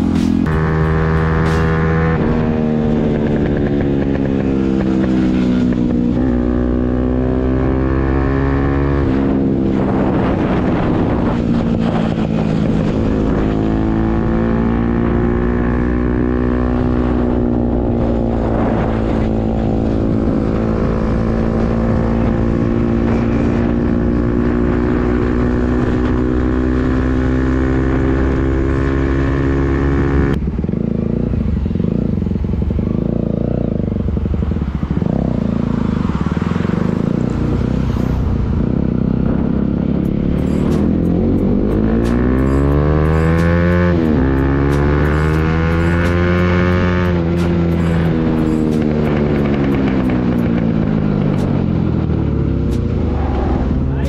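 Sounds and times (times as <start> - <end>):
motorcycle engine with loud exhaust: 0.0 - 54.0.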